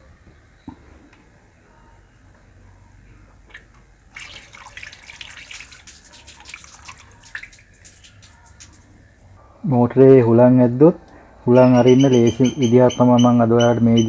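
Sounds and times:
water splashing and dripping: 0:03.5 - 0:09.3.

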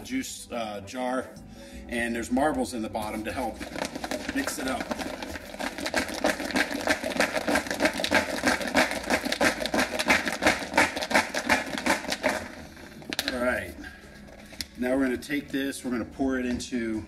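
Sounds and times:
marbles rattling in a jar: 0:03.4 - 0:13.7.

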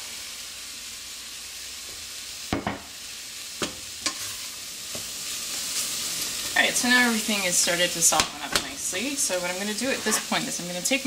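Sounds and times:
vegetables sizzling in oil: 0:00.0 - 0:11.0.

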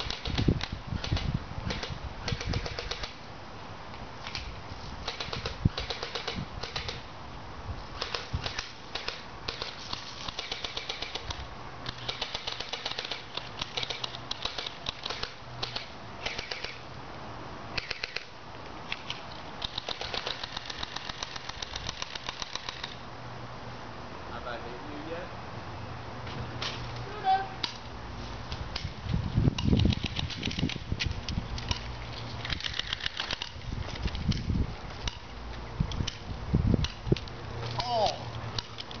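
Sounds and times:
airsoft guns firing bursts: 0:00.0 - 0:03.2, 0:05.0 - 0:07.0, 0:08.0 - 0:16.8, 0:17.8 - 0:18.3, 0:19.6 - 0:23.0.

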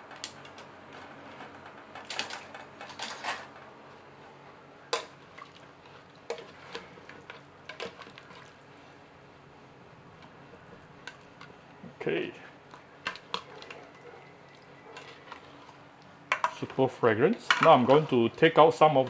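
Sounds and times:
utensils clinking in metal pot: 0:02.1 - 0:03.5, 0:16.3 - 0:19.0.

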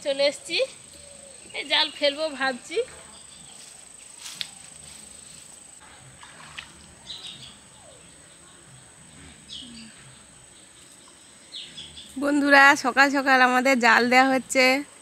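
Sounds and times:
high insect trill: 0:00.0 - 0:05.8.

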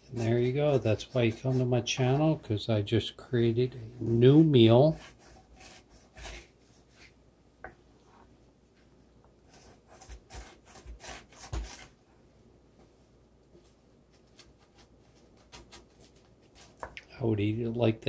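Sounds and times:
wooden spatulas scraping a skillet: 0:04.6 - 0:07.2.

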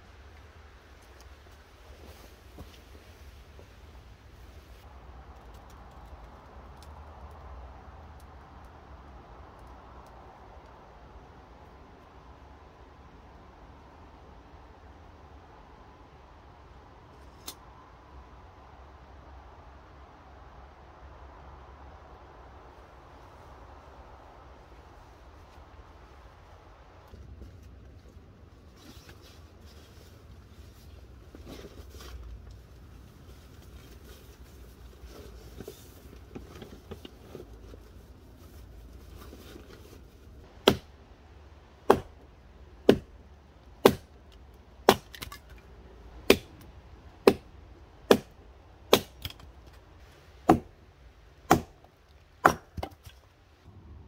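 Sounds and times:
hatchet chopping into log: 0:40.6 - 0:40.9, 0:41.9 - 0:42.1, 0:42.9 - 0:43.1, 0:43.8 - 0:44.1, 0:44.9 - 0:45.4, 0:46.3 - 0:46.5, 0:47.2 - 0:47.5, 0:48.1 - 0:48.3, 0:48.9 - 0:49.4, 0:50.5 - 0:50.7, 0:51.5 - 0:51.8, 0:52.4 - 0:53.1.

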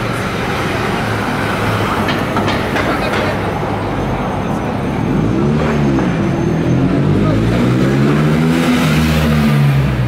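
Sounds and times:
car engine revving: 0:04.8 - 0:10.0.

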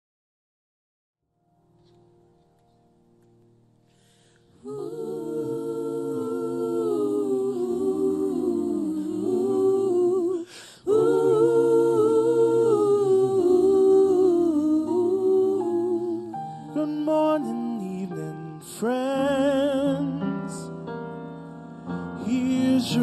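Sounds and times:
choir singing in harmony: 0:04.5 - 0:20.7, 0:22.1 - 0:23.0.

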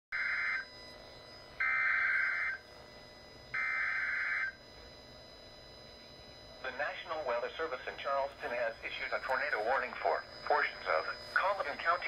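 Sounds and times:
digital data tones from radio speaker: 0:05.8 - 0:12.0.

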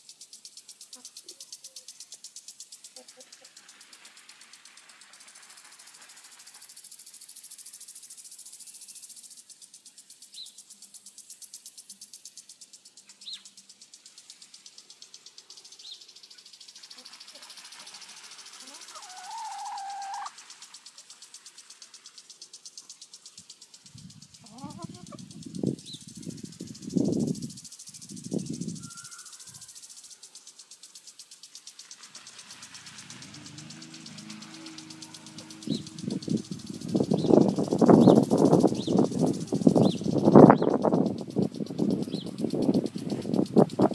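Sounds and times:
insects chirping: 0:00.0 - 0:43.9
short high chirps: 0:28.5 - 0:29.6
low steady hum: 0:32.5 - 0:38.4
brief low sound: 0:33.0 - 0:36.6.

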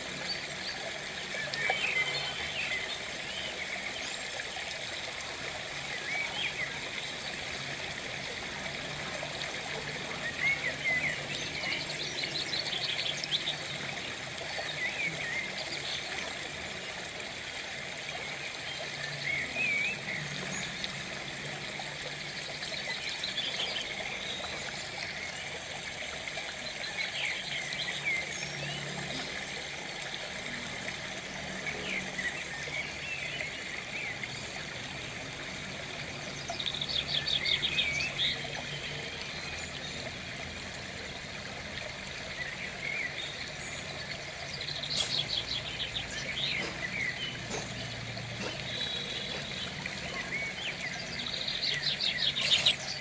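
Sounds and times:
stream trickling: 0:00.0 - 0:53.0
birds chirping: 0:42.3 - 0:53.0.

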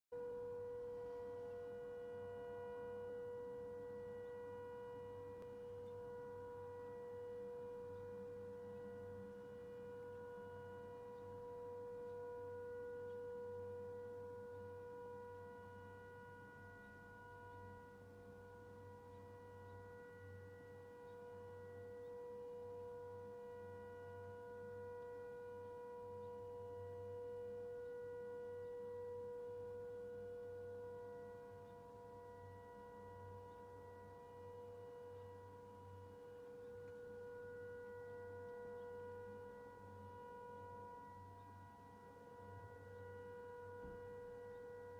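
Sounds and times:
air-raid siren steady tone: 0:00.1 - 0:44.9.

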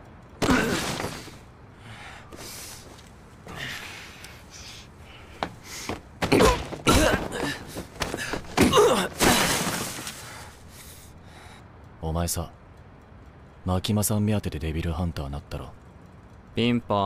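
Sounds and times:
pained grunts and cries: 0:00.4 - 0:01.4, 0:03.4 - 0:09.7
heavy blows landing: 0:05.4 - 0:10.4
crash: 0:08.6 - 0:10.3.

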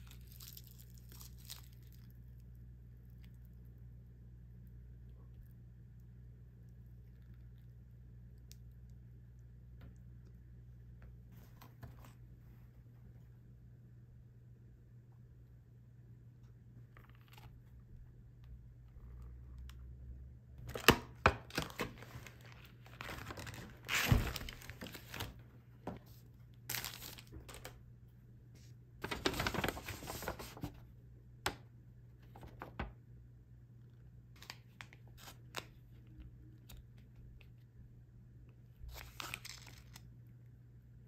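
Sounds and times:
plastic packaging crinkling: 0:00.0 - 0:02.3, 0:20.7 - 0:25.4, 0:26.7 - 0:27.8, 0:29.0 - 0:30.8, 0:38.9 - 0:40.1.

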